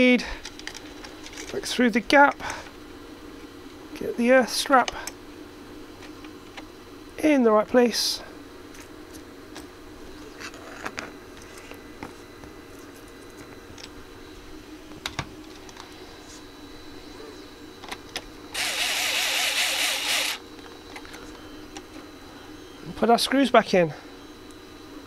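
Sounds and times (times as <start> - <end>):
electric screwdriver whirring: 18.6 - 20.4.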